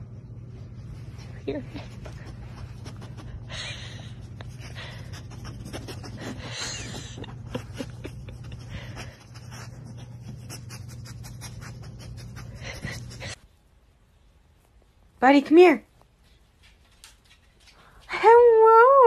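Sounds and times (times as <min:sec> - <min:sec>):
steady low hum: 0:00.0 - 0:18.2
dog panting: 0:01.2 - 0:13.4.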